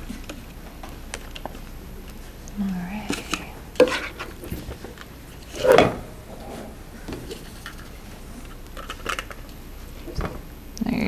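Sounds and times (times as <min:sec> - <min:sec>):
serving dishes clattering: 0:03.1 - 0:04.8, 0:05.5 - 0:07.9.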